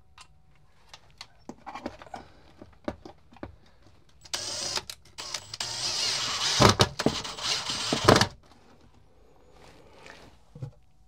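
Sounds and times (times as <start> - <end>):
cordless drill driving screws: 4.3 - 8.4.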